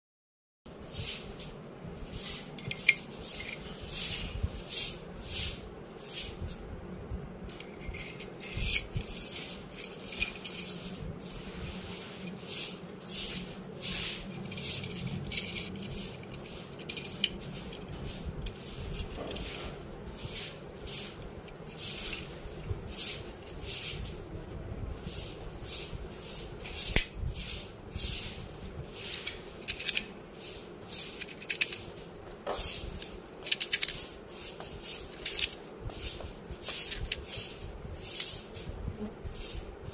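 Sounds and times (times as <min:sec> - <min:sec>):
low steady hum: 0:00.7 - 0:39.9
metal parts clicking and scraping: 0:02.6 - 0:03.7, 0:07.5 - 0:10.8, 0:14.2 - 0:19.7, 0:29.0 - 0:30.2, 0:30.9 - 0:32.0, 0:33.0 - 0:34.1, 0:35.0 - 0:35.6, 0:36.7 - 0:37.3.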